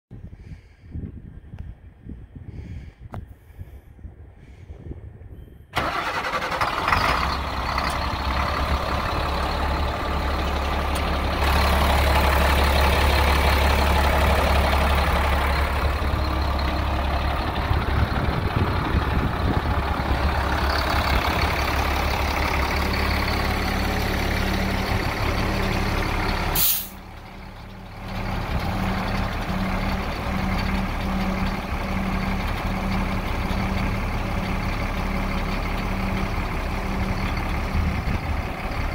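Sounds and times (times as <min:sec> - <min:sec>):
truck diesel engine running: 0:05.8 - 0:38.9
air hiss: 0:26.6 - 0:27.0.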